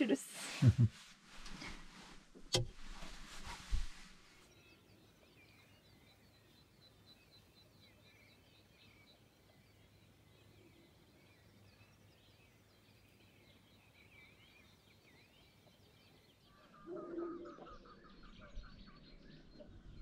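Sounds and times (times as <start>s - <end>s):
faint birdsong: 0.0s - 20.0s.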